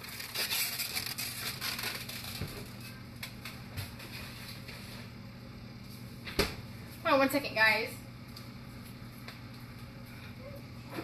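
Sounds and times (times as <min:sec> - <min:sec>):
crinkling plastic or paper: 0:00.0 - 0:05.0.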